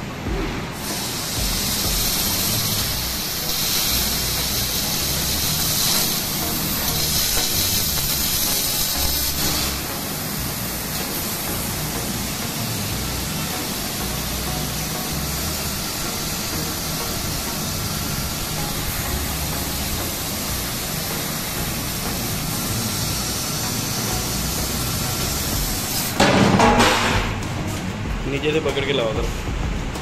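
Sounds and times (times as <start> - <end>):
laser cutter gas jet hiss: 0.0 - 26.2.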